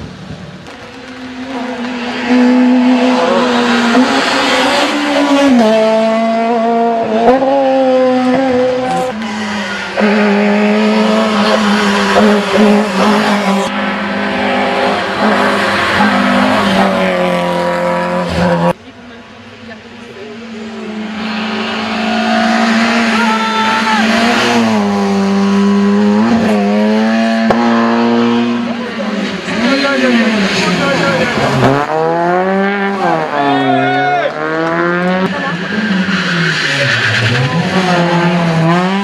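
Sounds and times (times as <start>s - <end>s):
rally car engines at high revs: 0.0s - 39.0s.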